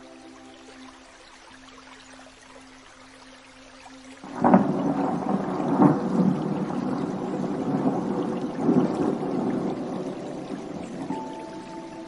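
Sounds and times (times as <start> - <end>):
thunder crack and rumble: 4.2 - 11.8.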